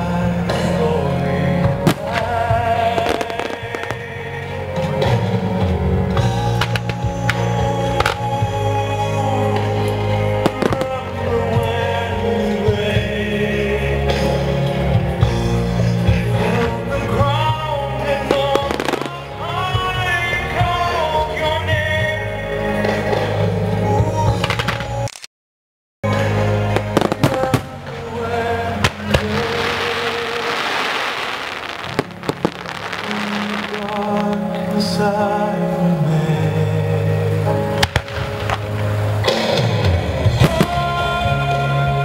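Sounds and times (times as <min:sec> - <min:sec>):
choral music over loudspeakers: 0:00.0 - 0:25.1, 0:26.0 - 0:42.0
firework bangs: 0:01.8 - 0:04.1, 0:18.3 - 0:19.4, 0:26.7 - 0:34.7, 0:37.8 - 0:41.1.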